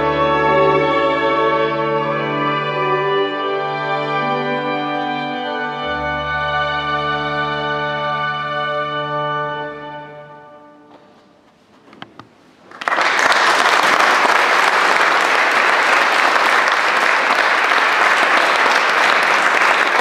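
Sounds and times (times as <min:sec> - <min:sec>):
audience applauding: 0:12.6 - 0:20.0.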